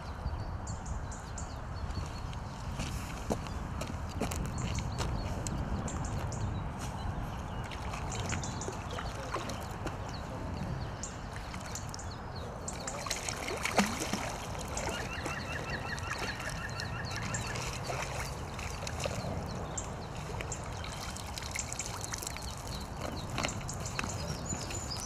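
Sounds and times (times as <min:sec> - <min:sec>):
water splashing and trickling: 0:06.2 - 0:25.0.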